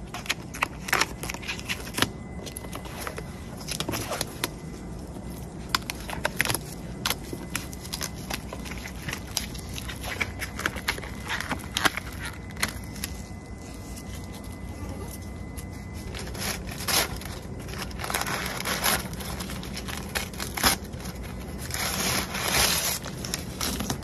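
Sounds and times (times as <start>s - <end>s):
masking tape peeling off: 16.0s - 24.0s.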